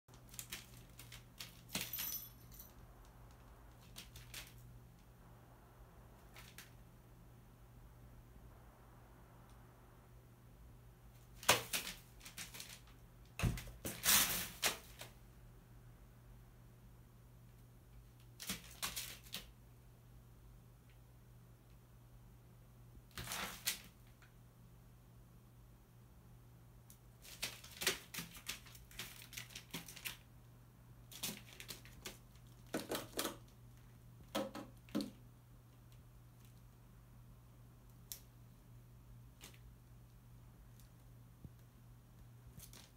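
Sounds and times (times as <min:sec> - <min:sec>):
crow pecking on newspaper: 0:00.1 - 0:01.8, 0:11.2 - 0:13.0, 0:18.2 - 0:19.5, 0:27.2 - 0:30.3, 0:31.1 - 0:35.0
paper rustling: 0:00.1 - 0:02.1, 0:03.7 - 0:04.7, 0:11.3 - 0:15.2, 0:23.1 - 0:24.0, 0:27.2 - 0:30.3, 0:31.1 - 0:33.2.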